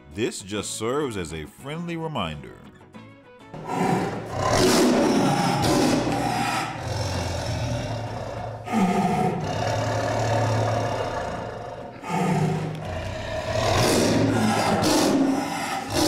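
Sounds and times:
tiger growling and snarling: 3.6s - 16.0s.

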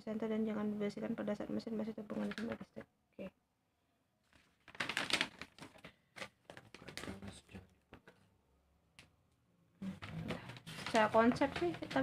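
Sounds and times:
paper and plastic crinkling: 2.1s - 2.6s, 4.2s - 7.5s, 9.9s - 12.0s.

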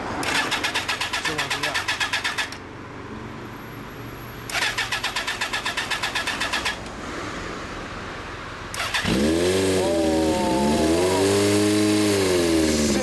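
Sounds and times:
motorcycle electric starter cranking: 0.2s - 2.6s, 4.5s - 6.9s, 8.7s - 9.7s
engine catching: 8.7s - 13.0s.

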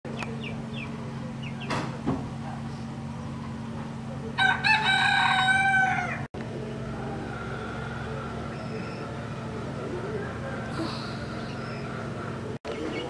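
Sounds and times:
rooster crowing: 4.4s - 6.3s
low hum: 5.6s - 12.6s.

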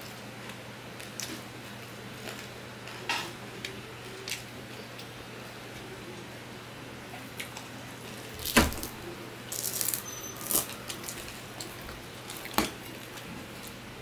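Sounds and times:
faint steady hum: 0.0s - 14.0s
crackling: 7.4s - 13.8s.

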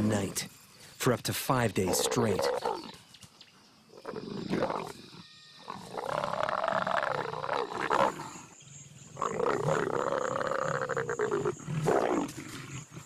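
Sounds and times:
leopards growling and snarling: 1.8s - 3.0s, 3.9s - 13.0s.

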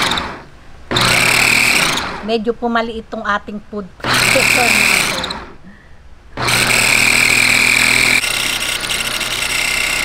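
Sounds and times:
food processor motor grinding: 0.0s - 2.3s, 4.0s - 5.6s, 6.4s - 10.0s.

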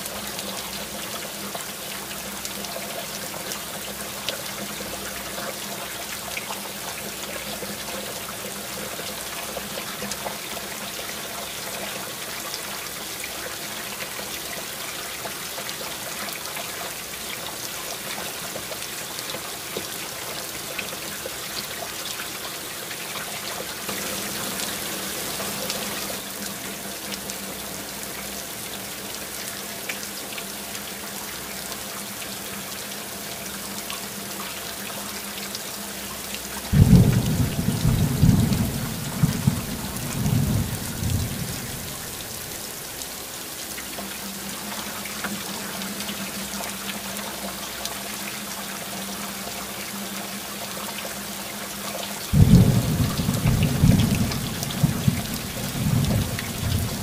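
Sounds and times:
heavy rain falling: 0.0s - 30.8s, 36.0s - 46.3s, 52.2s - 57.0s
thunder rumbling: 36.7s - 42.5s, 52.4s - 57.0s.

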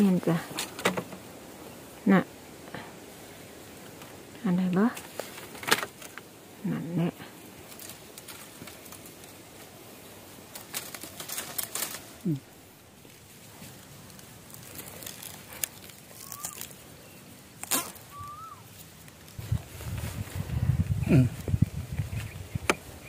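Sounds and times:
dry twigs crackling and snapping: 3.8s - 6.4s, 7.4s - 20.2s.

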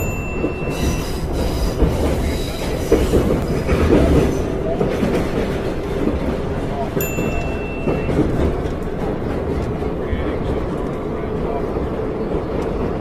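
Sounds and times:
high wheel squeals: 0.0s - 4.4s
subway train rumble: 0.0s - 13.0s.

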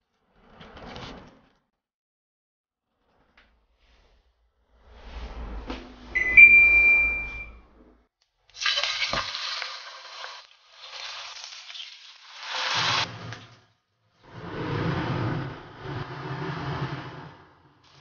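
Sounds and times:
electronic beep: 6.2s - 7.6s
steak sizzling in a frying pan: 8.6s - 13.0s.

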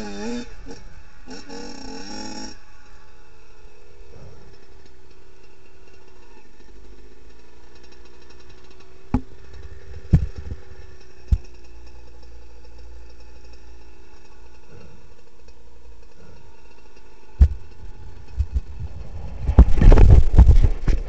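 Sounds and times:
dirt bike engine idling: 0.0s - 21.0s
sharp knocks: 9.1s - 9.4s, 10.1s - 10.6s, 17.4s - 17.7s.

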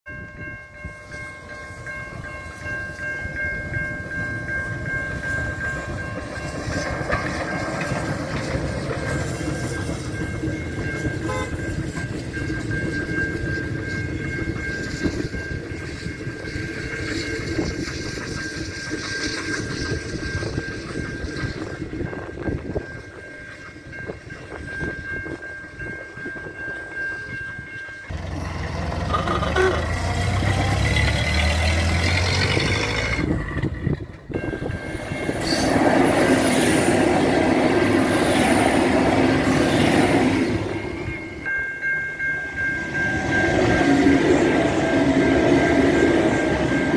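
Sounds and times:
crossing warning bells ringing: 0.1s - 46.9s
steam locomotive wheels clattering: 0.2s - 46.9s.

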